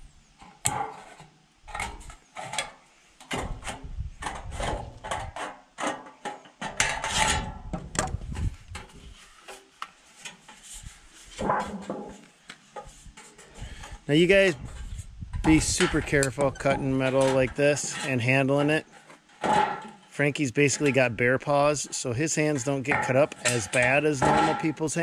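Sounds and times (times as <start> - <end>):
sheet metal scraping: 3.3 - 7.6, 10.2 - 21.0, 22.3 - 25.0
sheet metal clanking: 19.4 - 20.1, 22.4 - 25.0.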